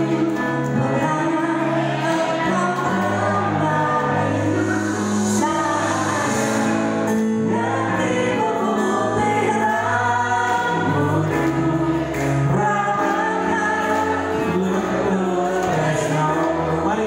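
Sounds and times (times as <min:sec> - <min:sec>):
live band playing: 0:00.0 - 0:17.0
woman singing: 0:00.0 - 0:17.0
man singing: 0:08.3 - 0:17.0.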